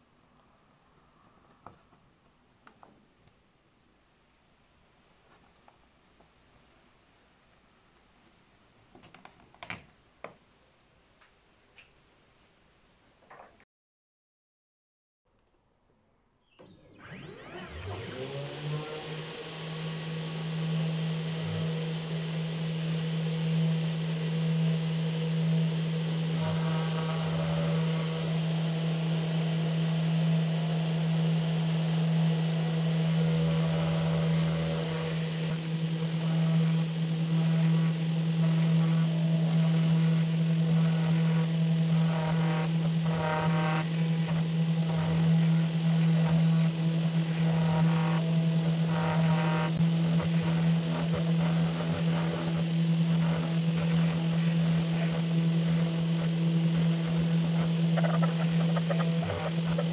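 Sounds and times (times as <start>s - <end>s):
router spindle humming: 16.6s - 59.9s.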